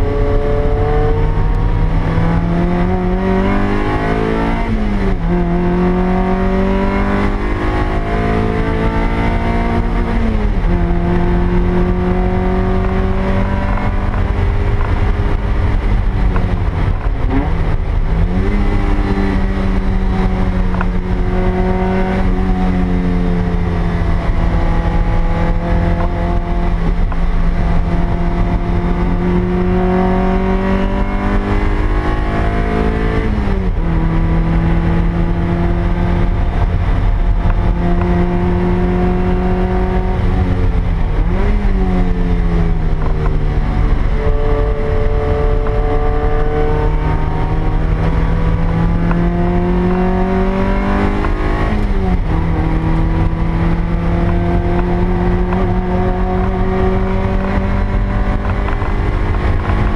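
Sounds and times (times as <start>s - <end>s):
car engine revving: 0.0s - 59.9s
road and wind noise: 0.0s - 59.9s.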